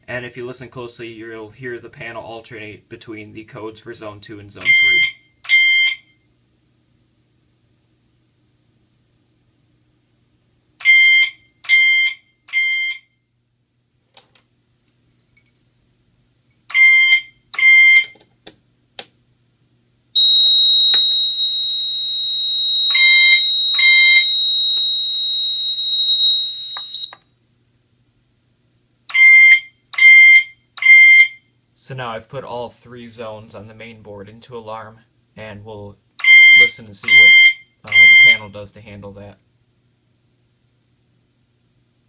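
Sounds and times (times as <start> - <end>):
alarm horn tone pulses: 20.2 - 27.1
steady high-pitched tone: 20.2 - 27.2.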